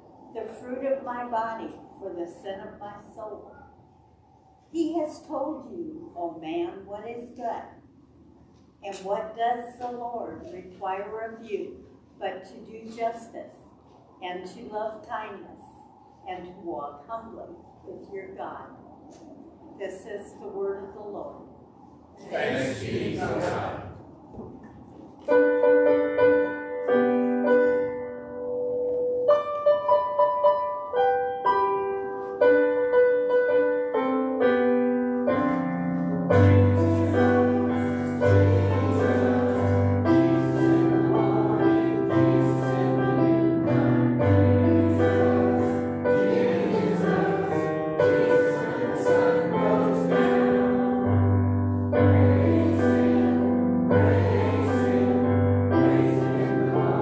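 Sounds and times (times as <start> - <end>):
piano melody with chords: 25.2 - 57.0.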